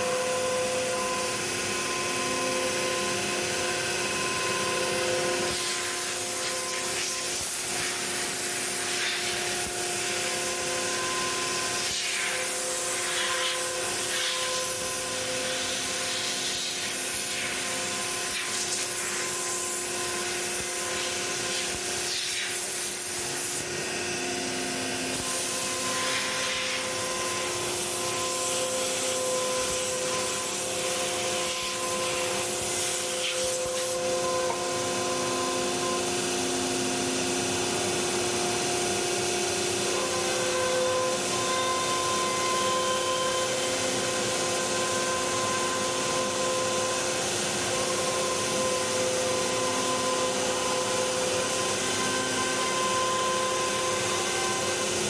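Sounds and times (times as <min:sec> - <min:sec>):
router spindle whine: 0:00.0 - 0:55.0
hiss of cutting: 0:05.4 - 0:23.7, 0:25.1 - 0:34.0.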